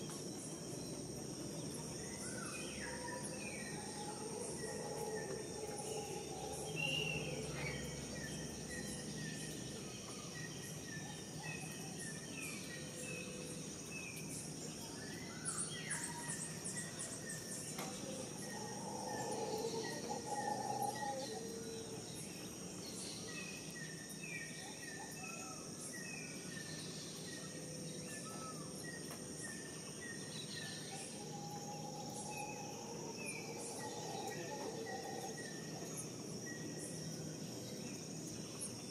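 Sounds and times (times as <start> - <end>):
insects droning: 0.0 - 38.9
birds chirping: 26.7 - 38.9.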